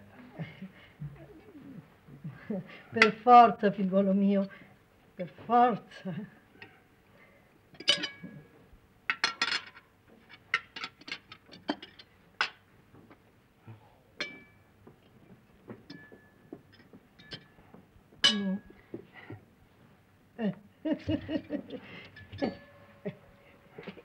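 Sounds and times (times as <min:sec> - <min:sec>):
cutlery clinking on plates: 0:07.8 - 0:08.3, 0:09.1 - 0:12.6, 0:14.2 - 0:14.6, 0:15.8 - 0:17.6, 0:18.2 - 0:18.7, 0:22.0 - 0:22.9.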